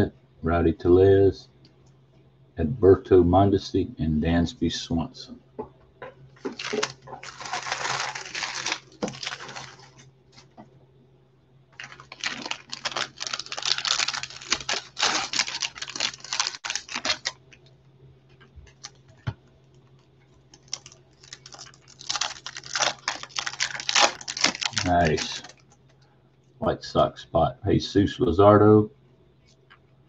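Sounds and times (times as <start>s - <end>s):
cardboard and wrapper crackling: 6.4s - 10.5s, 11.8s - 17.6s, 18.3s - 25.6s.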